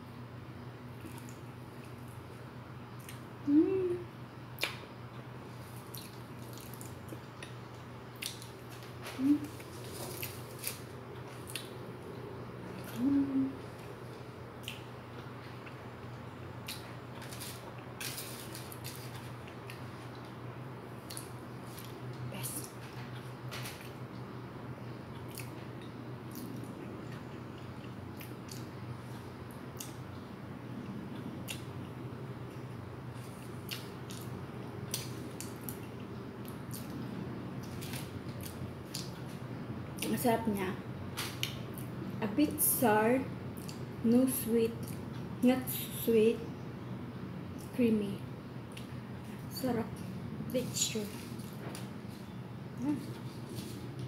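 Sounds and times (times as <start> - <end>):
steady low hum: 0.0 - 54.0
soft chewing: 1.0 - 2.4, 3.0 - 3.8, 4.6 - 24.3, 25.0 - 40.2, 43.5 - 44.2, 48.6 - 54.0
wet chewing with mouth clicks: 5.6 - 7.6.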